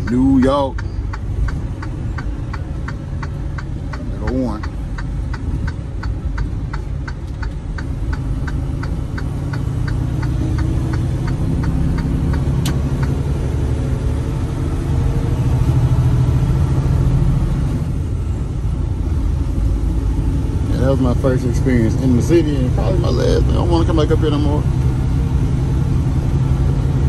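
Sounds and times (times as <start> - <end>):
turn signal clicking: 0.0 - 14.0
diesel engine rumbling: 0.0 - 27.0.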